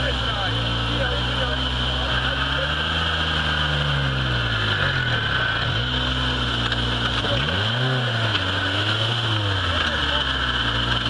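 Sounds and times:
off-road vehicle engine labouring: 0:00.0 - 0:11.0.

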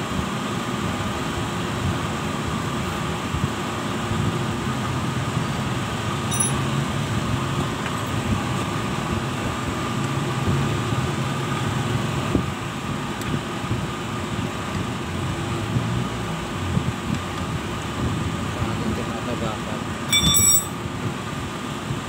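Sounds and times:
machinery droning: 0:06.2 - 0:06.8.

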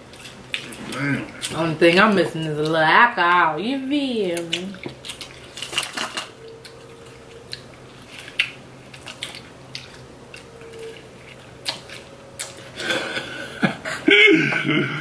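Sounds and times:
chewing and biting corn: 0:04.4 - 0:12.8.

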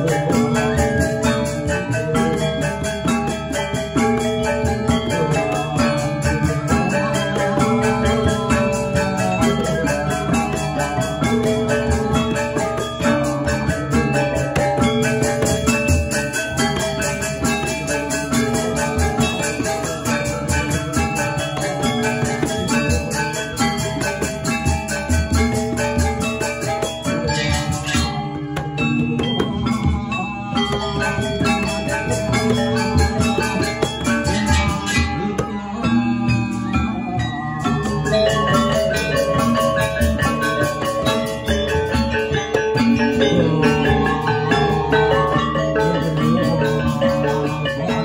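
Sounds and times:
metallophones struck rapidly: 0:00.0 - 0:35.9
low drum and gong beats: 0:00.0 - 0:48.0.

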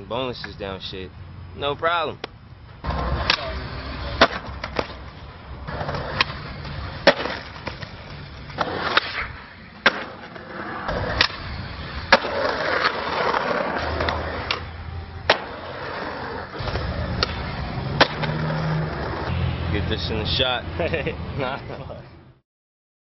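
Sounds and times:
skateboard wheels rolling on concrete: 0:01.6 - 0:22.3
skateboard popping and landing: 0:02.8 - 0:19.3.

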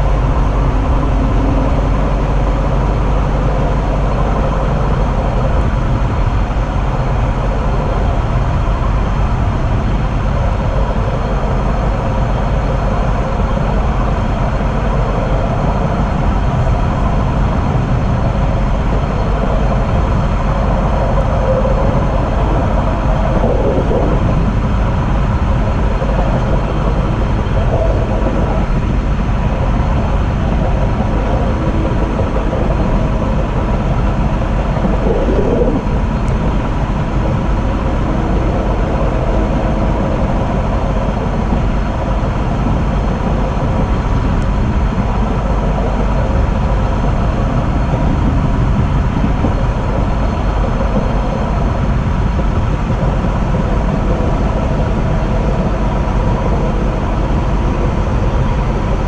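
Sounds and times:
train rumbling along track: 0:00.0 - 0:59.0.

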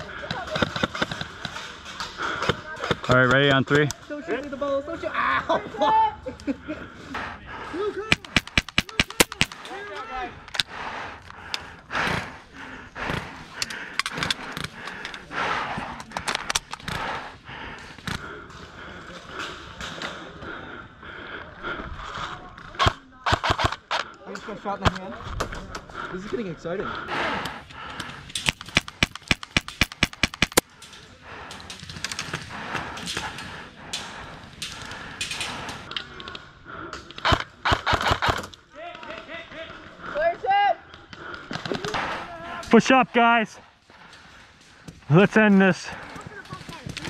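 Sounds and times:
airsoft guns firing: 0:08.1 - 0:09.7, 0:22.8 - 0:24.0, 0:28.3 - 0:30.9, 0:37.2 - 0:38.5.

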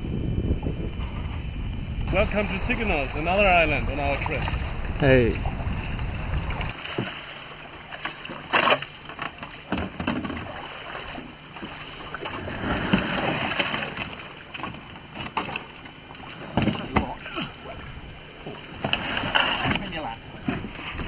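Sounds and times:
kayaks knocking on stones: 0:08.0 - 0:10.6, 0:16.4 - 0:17.2.

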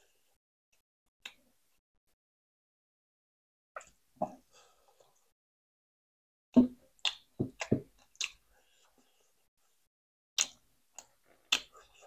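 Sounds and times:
eating smacks and clicks: 0:07.0 - 0:08.4, 0:10.4 - 0:12.0.

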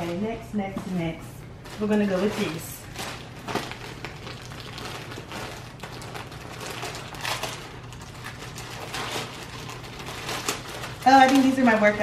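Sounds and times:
plastic mailer ripping and crinkling: 0:01.6 - 0:12.0.

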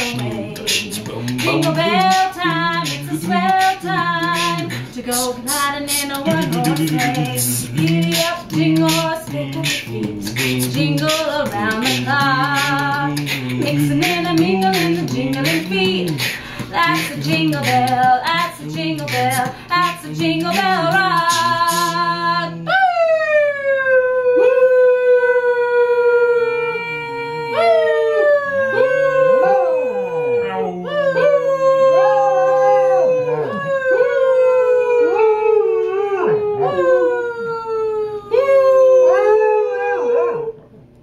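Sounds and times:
dog howling: 0:22.6 - 0:40.6.

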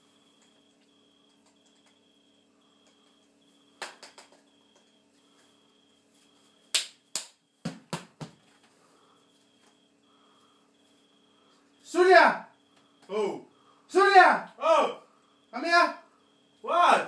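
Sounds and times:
slaps and thumps on remote: 0:07.6 - 0:08.4.

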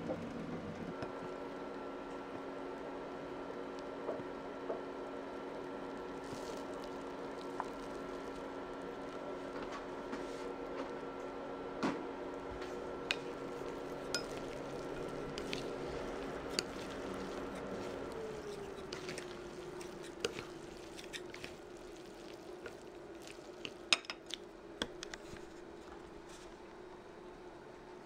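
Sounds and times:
steady multi-tone hum: 0:00.0 - 0:28.0
chopsticks tapping ceramic bowl: 0:13.0 - 0:19.3.

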